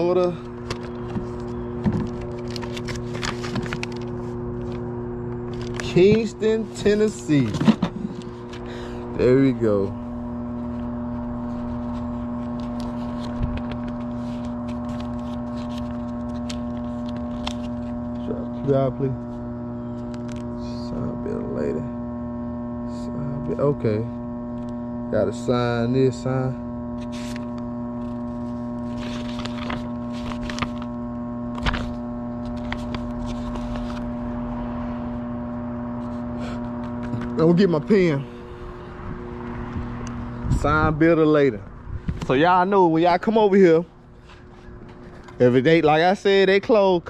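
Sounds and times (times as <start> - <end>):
steady droning hum: 0.0 - 47.0
paper rustling and crinkling: 0.5 - 4.8, 5.5 - 6.3, 11.4 - 18.6, 27.0 - 34.2.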